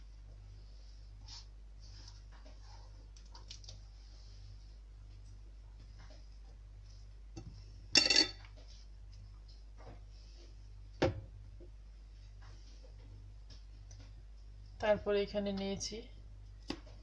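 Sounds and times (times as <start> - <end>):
faint low hum: 0.0 - 17.0
dishes clattering: 8.0 - 8.5.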